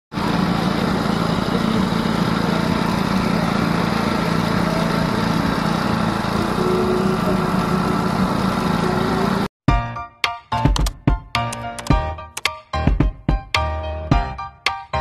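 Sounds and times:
motor running with hiss: 0.2s - 9.5s.

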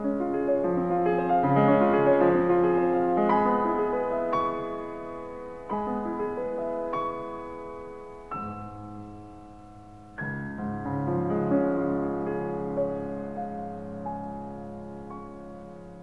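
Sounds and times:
slow solo piano chords: 0.0s - 16.0s.

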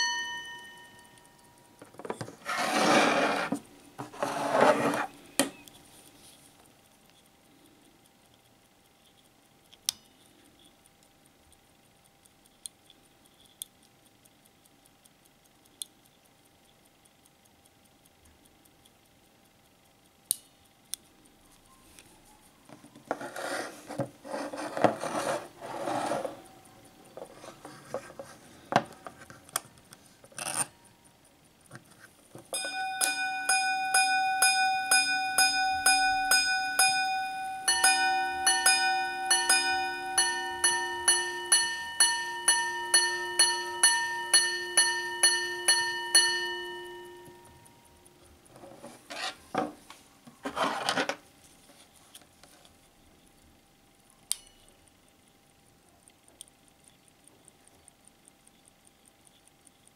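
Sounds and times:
watch gong chimes: 0.0s - 1.3s, 32.6s - 47.6s.

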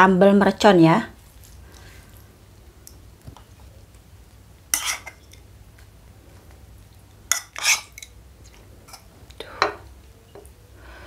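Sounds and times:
spoon scraping a ceramic bowl: 4.7s - 5.4s, 7.3s - 9.8s.

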